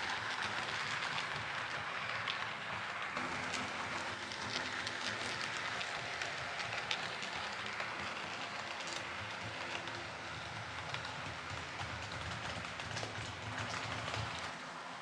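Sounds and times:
model train wheels rattling: 0:00.0 - 0:14.7.

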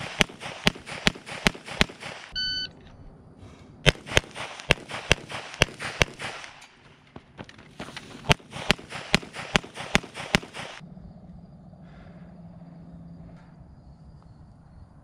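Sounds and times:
pistol shots: 0:00.0 - 0:02.4, 0:03.8 - 0:07.4, 0:08.2 - 0:10.8
electronic shot timer beep: 0:02.3 - 0:02.7.

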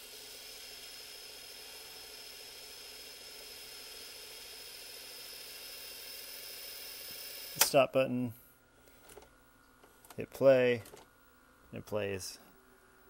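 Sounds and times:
tape rewinding whir: 0:00.0 - 0:07.8.

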